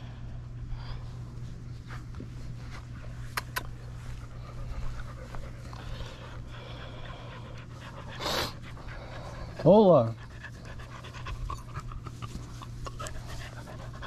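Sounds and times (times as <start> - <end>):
dogs panting: 0.6 - 14.0
dog huffing breath: 3.3 - 14.0.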